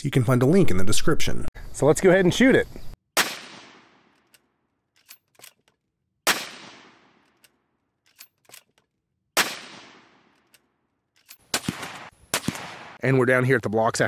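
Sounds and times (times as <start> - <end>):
rifle shots with echo: 3.2 - 4.2, 6.2 - 7.3, 9.4 - 10.4, 11.4 - 13.0
rifle bolt clicks: 4.1 - 5.8, 7.2 - 8.9, 10.2 - 12.6.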